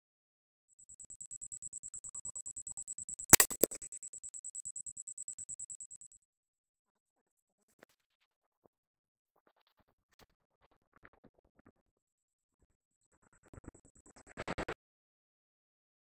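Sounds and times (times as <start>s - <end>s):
high-pitched electronic pulsing: 1.0s - 6.1s.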